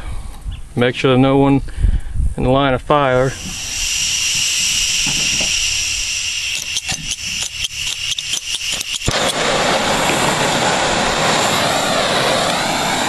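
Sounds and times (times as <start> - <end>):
torch flame hissing: 3.1 - 13.0
insects chirping: 3.2 - 13.0
torch igniter clicks: 3.4 - 9.4.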